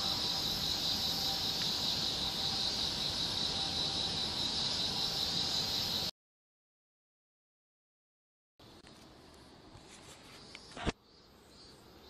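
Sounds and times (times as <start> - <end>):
shrill insect chorus: 0.0 - 6.1, 10.2 - 12.0.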